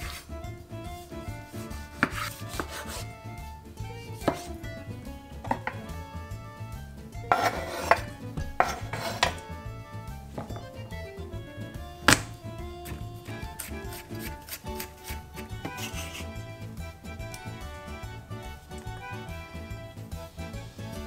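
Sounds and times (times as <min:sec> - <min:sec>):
background music: 0:00.0 - 0:21.0
knife chopping on cutting board: 0:01.6 - 0:03.1, 0:04.2 - 0:06.0, 0:07.3 - 0:09.5, 0:12.0 - 0:16.4
pieces clattering into metal bowl: 0:05.4 - 0:06.0.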